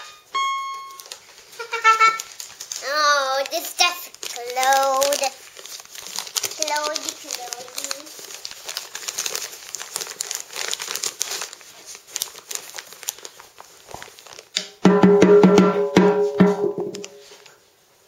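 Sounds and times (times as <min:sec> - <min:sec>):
electronic toy tone: 0:00.0 - 0:01.1
wrapping paper crinkling: 0:00.8 - 0:14.6, 0:16.8 - 0:18.0
toy hand drum strikes: 0:14.6 - 0:17.2.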